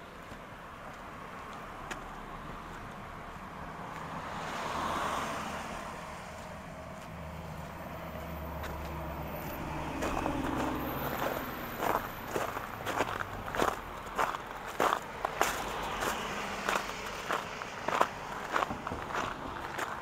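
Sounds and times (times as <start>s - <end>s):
car passing: 0.7s - 20.0s
vehicle engine low hum: 5.4s - 20.0s
footsteps crunching on snow: 6.2s - 20.0s.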